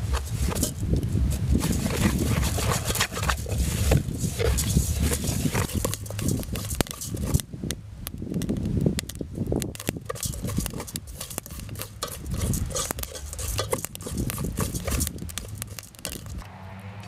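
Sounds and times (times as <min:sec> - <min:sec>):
rice grains scraping metal pot: 0:00.0 - 0:07.4, 0:09.7 - 0:16.4.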